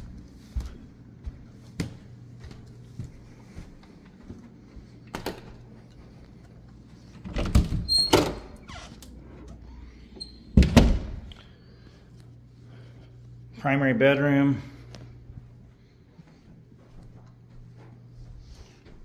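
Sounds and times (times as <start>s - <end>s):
door squeak: 7.4s - 9.0s.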